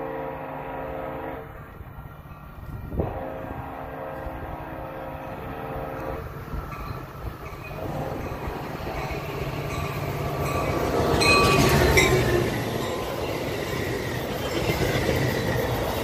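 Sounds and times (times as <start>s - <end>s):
locomotive horn blasts: 0.0s - 1.8s, 2.9s - 6.4s, 7.8s - 8.6s
low rumble of train: 0.0s - 16.0s.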